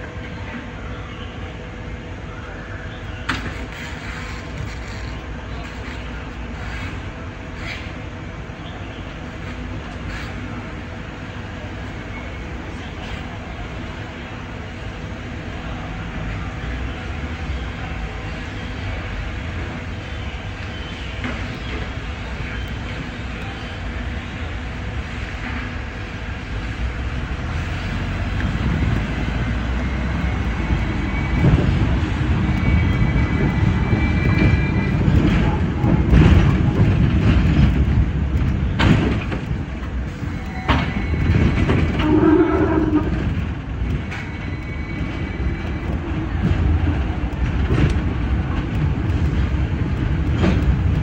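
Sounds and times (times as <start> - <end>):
tram wheels and motor rumbling: 0.0 - 51.0
wheels clicking over rail joints: 27.4 - 51.0
high wheel squeal: 29.5 - 35.6, 40.2 - 46.0.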